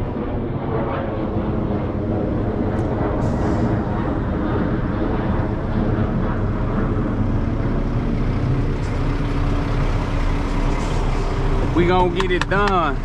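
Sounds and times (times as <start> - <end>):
diesel truck engine idling: 6.4 - 13.0.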